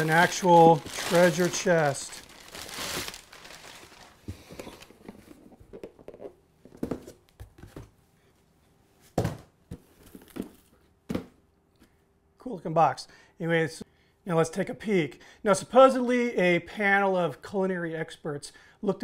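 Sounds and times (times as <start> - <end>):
packing paper rustling: 0.0 - 5.4.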